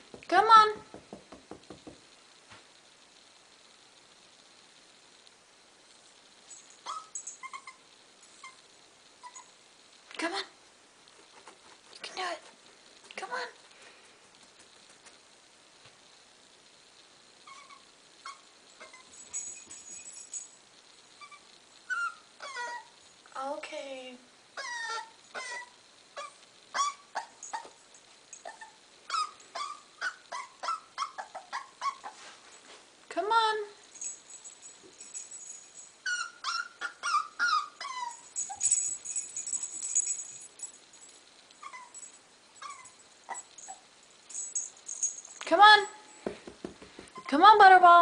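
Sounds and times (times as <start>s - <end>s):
puppy whimpering: 6.9s - 7.8s, 9.2s - 9.5s, 17.4s - 19.1s, 21.2s - 23.0s, 24.6s - 27.8s, 28.4s - 32.2s, 36.0s - 38.6s, 41.6s - 42.0s, 42.6s - 43.8s, 47.1s - 47.4s
light jingling: 18.6s - 20.8s, 33.8s - 36.7s, 37.8s - 46.4s.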